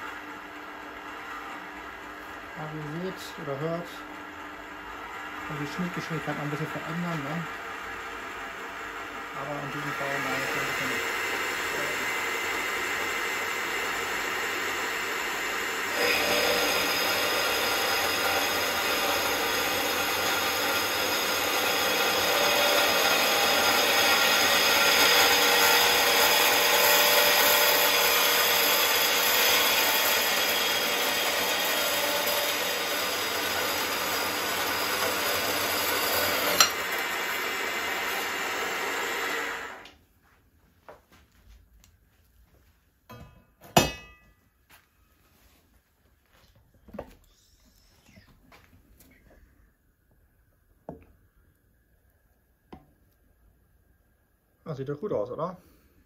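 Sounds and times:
metal band saw cutting metal: 9.4 - 39.8.

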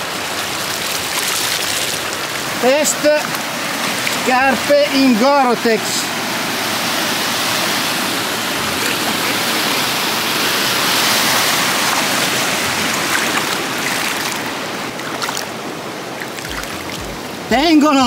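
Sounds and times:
stream water rushing: 0.0 - 18.0
feet splashing in water: 0.3 - 2.5, 8.4 - 17.4.

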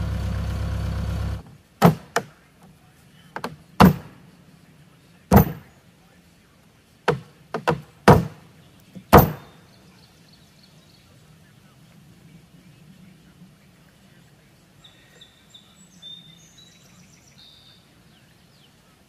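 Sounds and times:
tractor engine idling: 0.0 - 1.4
footsteps stomping on wooden deck: 3.4 - 4.1, 5.3 - 5.6, 7.1 - 8.4, 9.0 - 9.5.

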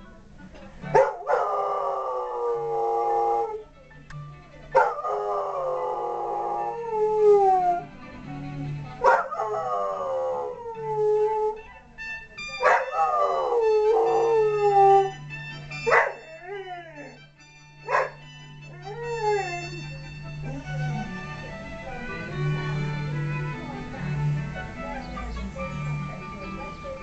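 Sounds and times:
music: 0.0 - 27.0
dog howling: 1.0 - 3.7, 4.8 - 7.8, 9.0 - 11.6, 12.6 - 15.2, 15.8 - 17.2, 17.9 - 23.2.

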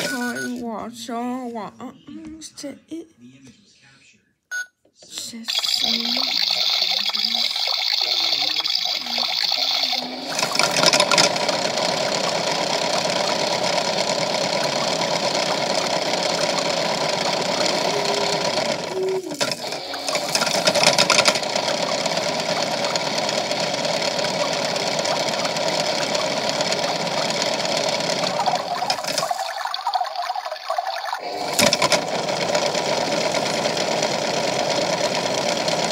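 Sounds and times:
toy washing machine motor whirring: 0.0 - 0.6, 5.1 - 35.9
rock and beads rattling in drum: 5.6 - 29.5.

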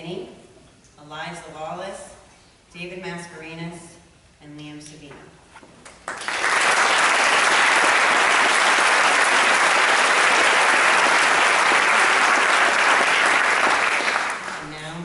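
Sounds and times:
large audience applauding: 6.0 - 14.7.

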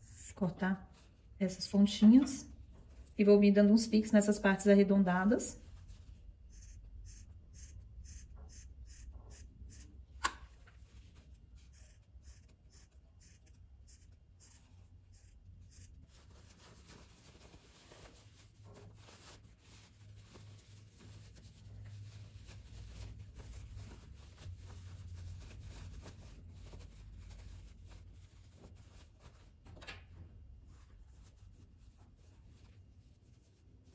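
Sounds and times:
fabric rustling: 16.1 - 33.9.

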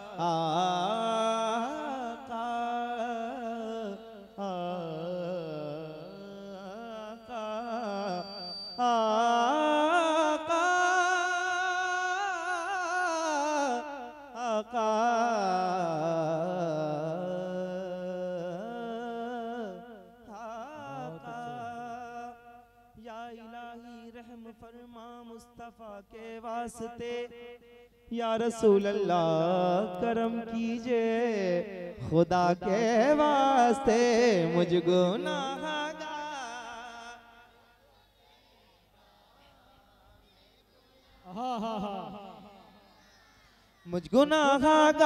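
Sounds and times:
man singing long wavering notes: 0.0 - 22.4.

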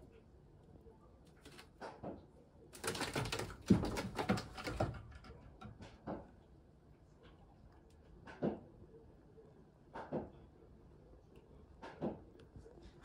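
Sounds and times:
cat claws scratching rope: 2.8 - 5.2.

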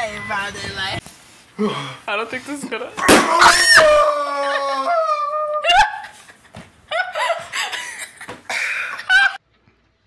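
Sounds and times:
high drawn-out cry: 3.1 - 6.2
children laughing: 3.7 - 9.4.

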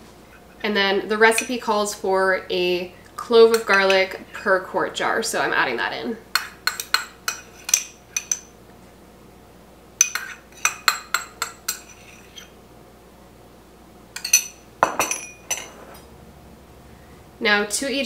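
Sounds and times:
metal spoon clinking on jars: 6.4 - 8.5, 14.2 - 16.0.

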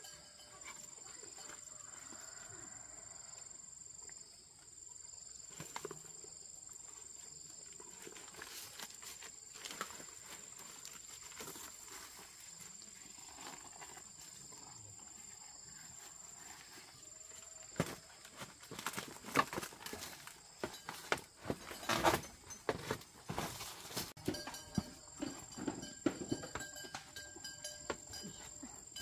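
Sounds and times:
faint animal sounds: 0.0 - 8.8, 9.6 - 18.7.

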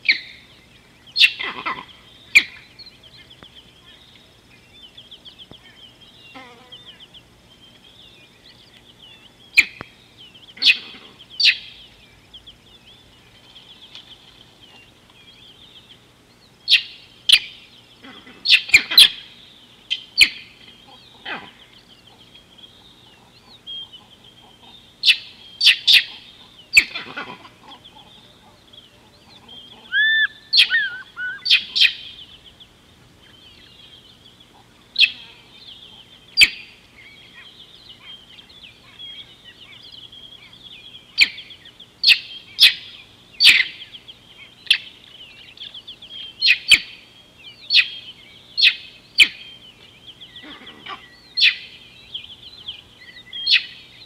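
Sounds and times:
birds twittering: 0.0 - 54.0
sharp bird calls: 0.0 - 54.0.

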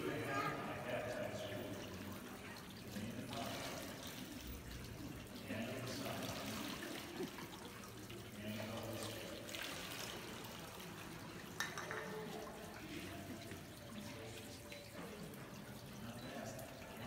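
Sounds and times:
water trickling in fountain: 0.0 - 17.0.

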